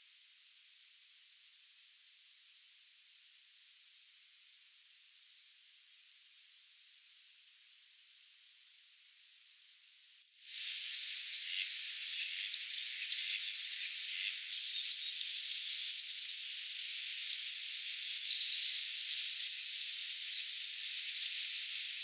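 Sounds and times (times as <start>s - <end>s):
outdoor background hiss: 0.0s - 22.0s
faint ticks: 11.6s - 21.6s.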